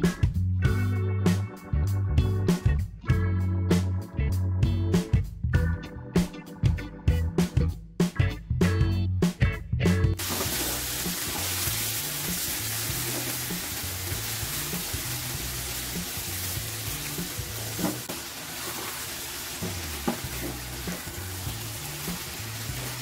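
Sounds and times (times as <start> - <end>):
background music with bass: 0.0 - 18.1, 19.5 - 23.0
fish sizzling in hot oil: 10.2 - 23.0
spatula scraping pan: 17.7 - 21.1.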